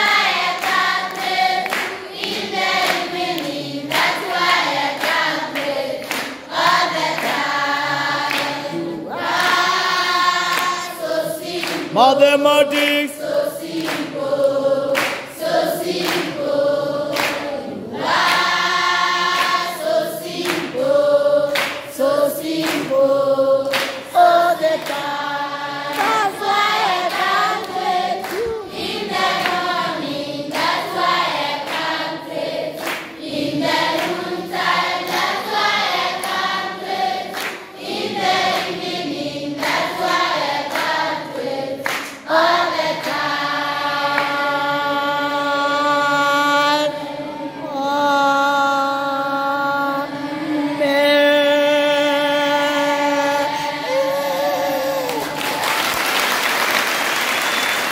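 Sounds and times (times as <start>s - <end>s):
children singing together: 0.0s - 12.0s, 12.9s - 55.6s.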